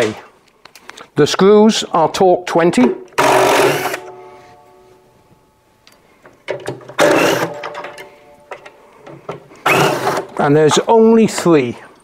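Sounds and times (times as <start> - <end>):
cordless drill running: 3.2 - 4.0, 7.0 - 7.6, 9.6 - 10.3.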